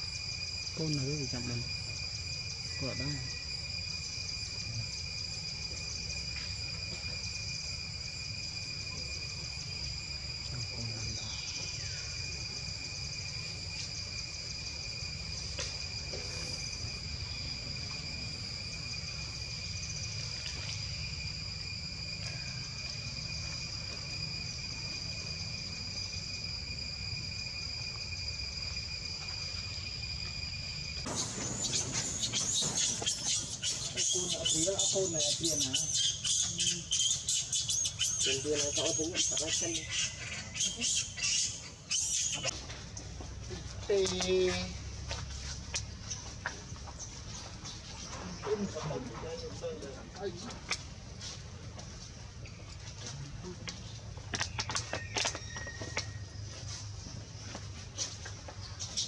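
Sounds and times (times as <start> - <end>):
insects trilling: 0.0 - 59.0
faint short falling calls: 31.1 - 42.5.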